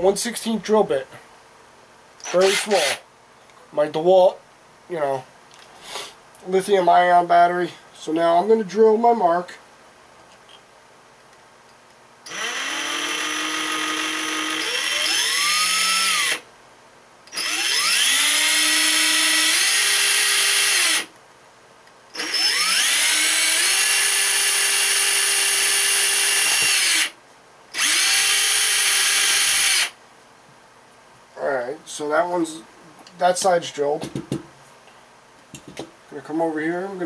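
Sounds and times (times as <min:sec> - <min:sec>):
cordless drill whine: 0:02.2 - 0:03.0, 0:12.3 - 0:16.4, 0:17.3 - 0:21.1, 0:22.1 - 0:30.0.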